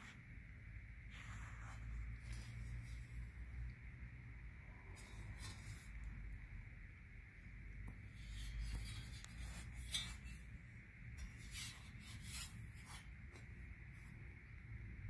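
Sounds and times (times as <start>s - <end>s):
low steady hum: 0.0s - 15.0s
hands rubbing metal: 7.9s - 10.6s, 11.2s - 13.5s.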